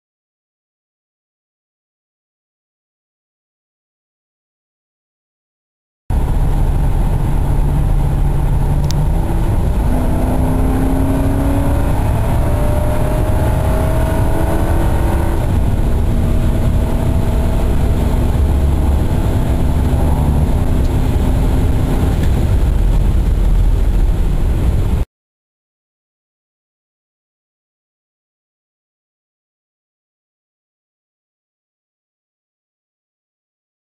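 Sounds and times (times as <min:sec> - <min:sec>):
car engine accelerating: 0:06.1 - 0:25.0
road and wind noise: 0:06.1 - 0:25.1.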